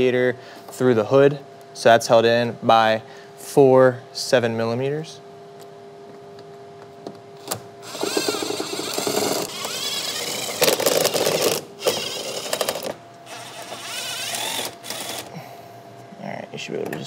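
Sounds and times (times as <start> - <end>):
power ratchet whirring: 7.8 - 15.4.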